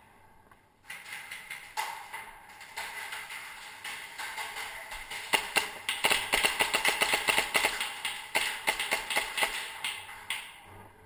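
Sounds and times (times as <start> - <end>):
airsoft pistols firing: 1.0 - 10.4.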